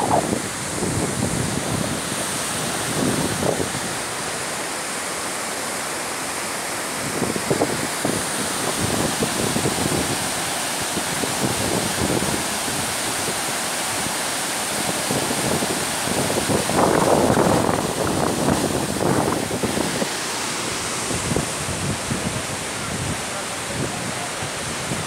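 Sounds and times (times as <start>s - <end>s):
wind buffeting microphone: 0.0s - 4.0s, 14.9s - 20.2s, 20.8s - 25.0s
river rushing over rocks: 0.0s - 25.0s.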